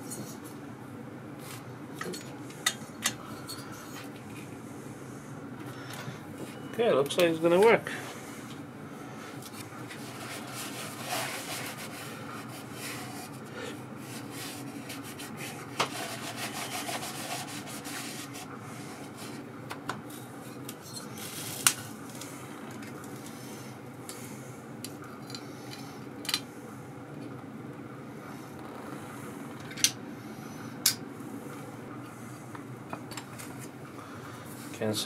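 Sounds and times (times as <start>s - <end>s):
towel wiping inside filter cover: 9.9s - 13.4s, 14.0s - 19.4s.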